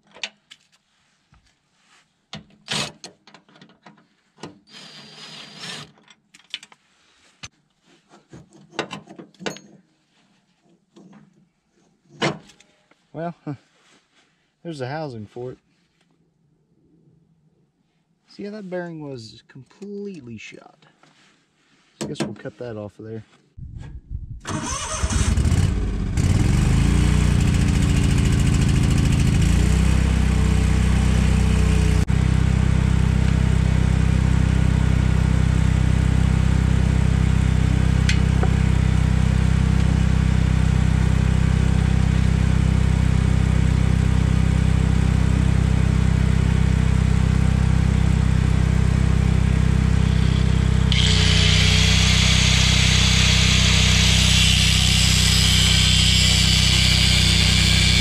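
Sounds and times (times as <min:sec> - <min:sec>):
small petrol engine running: 0:24.5 - 0:33.2, 0:49.0 - 0:58.0
angle grinder cutting metal: 0:50.0 - 0:58.0.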